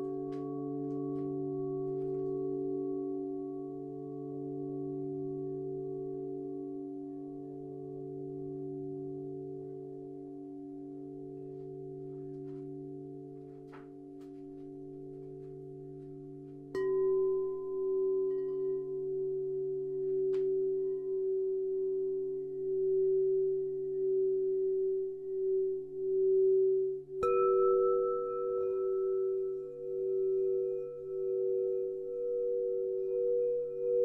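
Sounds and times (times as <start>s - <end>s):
singing bowls ringing: 0.0s - 34.0s.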